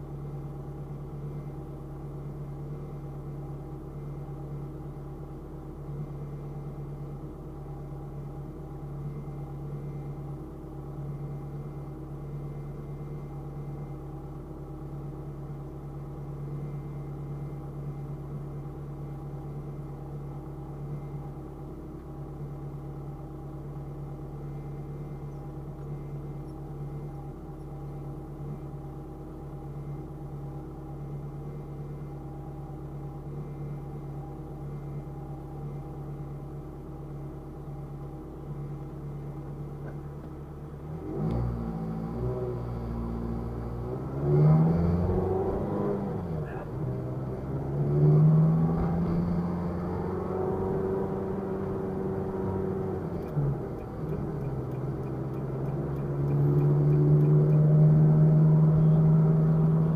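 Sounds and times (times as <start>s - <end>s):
car idling hum: 0.0s - 59.9s.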